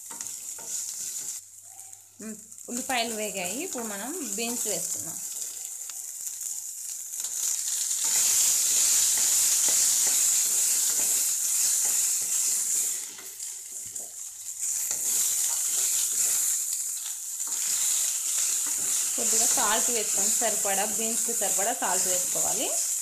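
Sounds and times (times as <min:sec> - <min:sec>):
spatula stirring and scraping: 0:00.0 - 0:01.4, 0:07.2 - 0:22.5
green beans sizzling in hot oil: 0:00.0 - 0:23.0.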